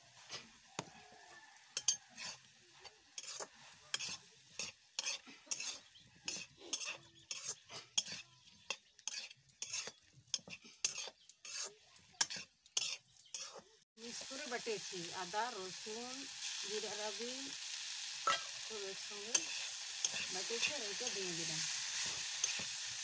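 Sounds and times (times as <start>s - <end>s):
food sizzling: 0.0s - 23.0s
spatula scraping metal pan: 1.8s - 13.7s, 18.3s - 22.9s.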